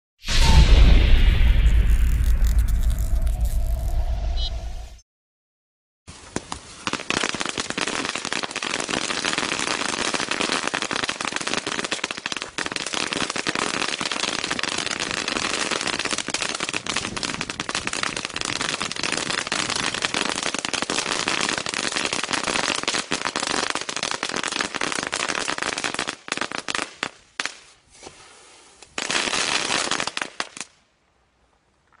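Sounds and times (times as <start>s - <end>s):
firework crackling: 0.3s - 4.5s.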